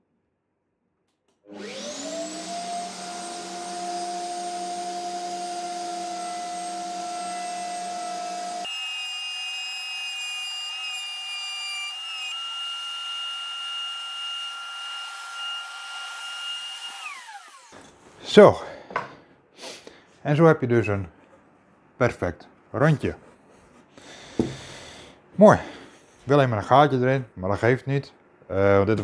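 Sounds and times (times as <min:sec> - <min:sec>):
router whining: 0:01.4 - 0:17.8.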